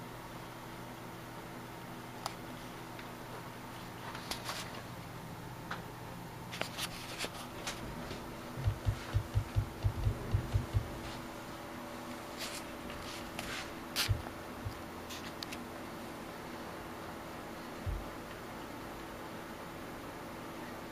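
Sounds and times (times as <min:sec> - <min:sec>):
computer hum: 0:00.0 - 0:20.9
dull low thumps: 0:08.6 - 0:11.0, 0:14.1 - 0:14.8.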